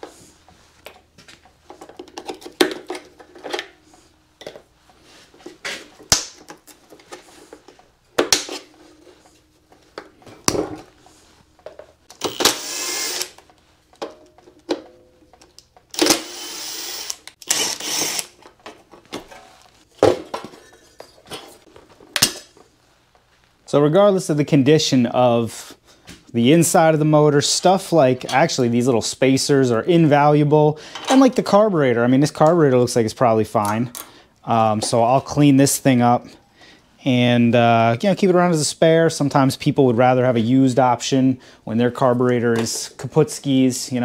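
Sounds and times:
cordless driver whirring: 0:12.1 - 0:13.4, 0:15.9 - 0:18.4.

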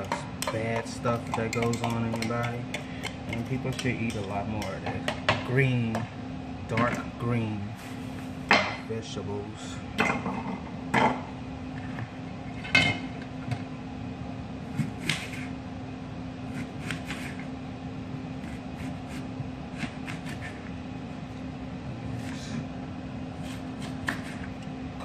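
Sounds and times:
steady low hum: 0:00.0 - 0:25.0
knife cutting onion on board: 0:14.7 - 0:15.6, 0:16.4 - 0:17.5, 0:18.4 - 0:20.7, 0:23.4 - 0:24.6.

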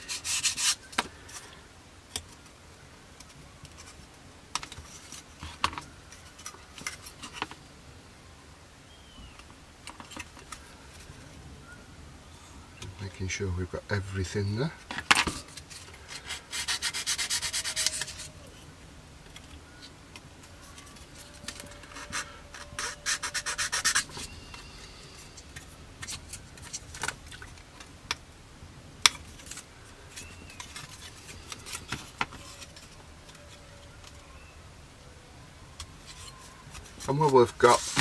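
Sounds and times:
sanding stick rubbing plastic: 0:16.2 - 0:18.4, 0:21.3 - 0:24.3.

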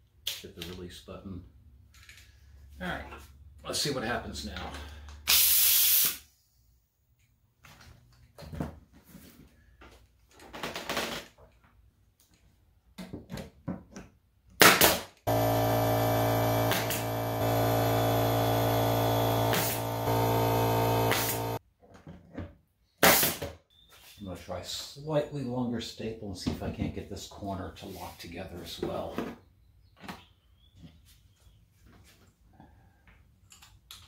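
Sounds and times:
pneumatic stapler firing: 0:05.3 - 0:06.2, 0:14.6 - 0:15.1, 0:16.6 - 0:17.2, 0:19.4 - 0:20.2, 0:20.8 - 0:21.6, 0:23.0 - 0:23.5
steady machine hum: 0:15.3 - 0:21.6.

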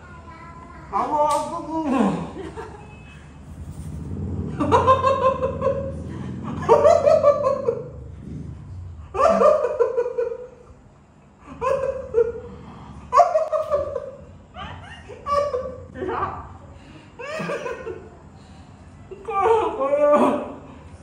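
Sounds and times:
women laughing hard: 0:04.6 - 0:05.9, 0:06.5 - 0:08.0, 0:09.1 - 0:10.5, 0:11.5 - 0:12.5, 0:13.2 - 0:16.2, 0:17.2 - 0:18.2.

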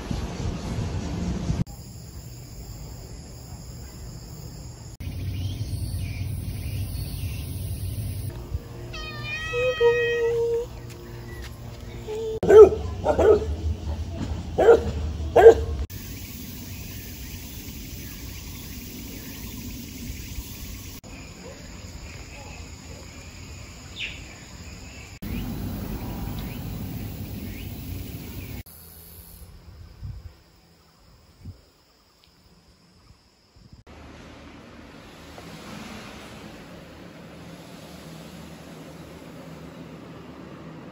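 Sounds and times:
quiet outdoor background noise: 0:00.0 - 0:40.9
cat meowing: 0:08.9 - 0:10.7.

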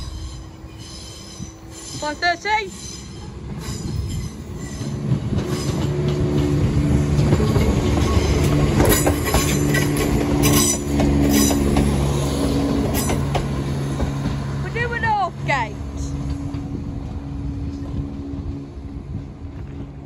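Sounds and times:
diesel train engines droning: 0:00.0 - 0:20.0
wheels clicking over rail joints: 0:03.5 - 0:15.2.

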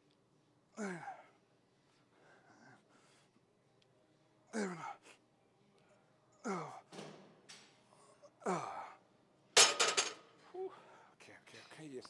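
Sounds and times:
metal barbell clanking on rack: 0:09.6 - 0:10.2.

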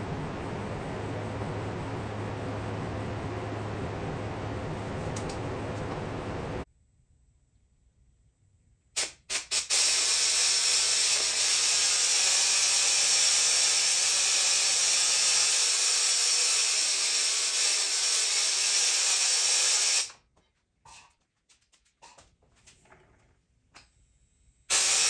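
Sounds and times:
spray gun air hissing: 0:09.0 - 0:20.1, 0:24.7 - 0:25.0.

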